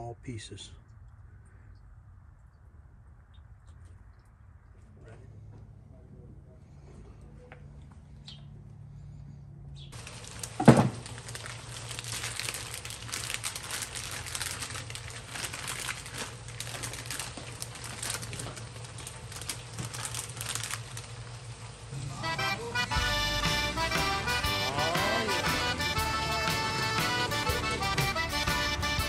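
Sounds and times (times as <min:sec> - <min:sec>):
plastic bag crinkling: 0:10.0 - 0:22.9.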